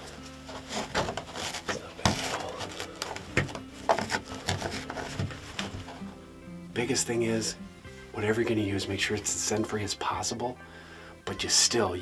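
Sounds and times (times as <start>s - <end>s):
cloth towel rustling: 0.0s - 6.3s.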